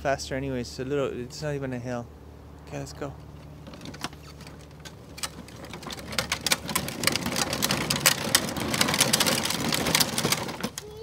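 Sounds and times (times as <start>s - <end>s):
plastic wheels rolling on asphalt: 3.4s - 11.0s.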